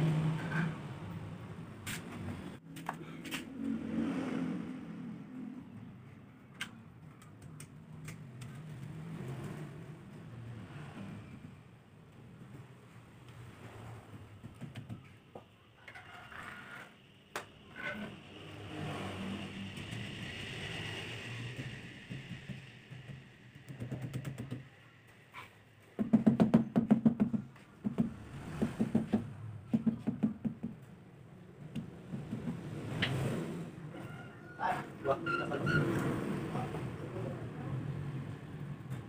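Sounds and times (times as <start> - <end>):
knocking and tapping on hard material: 14.4 - 15.5, 22.1 - 24.7, 26.0 - 30.9, 31.7 - 32.7.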